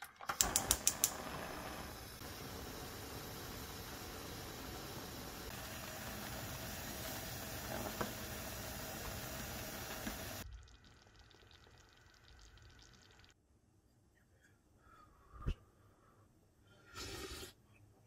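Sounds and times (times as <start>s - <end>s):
mixture boiling and bubbling: 0.0s - 13.4s
faint hiss: 0.4s - 10.4s.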